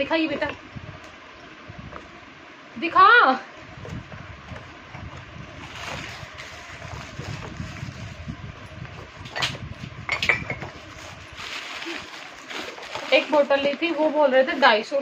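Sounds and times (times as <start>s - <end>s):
low rumbling noise on microphone: 0.0s - 15.0s
household objects knocking and clinking: 9.3s - 10.8s.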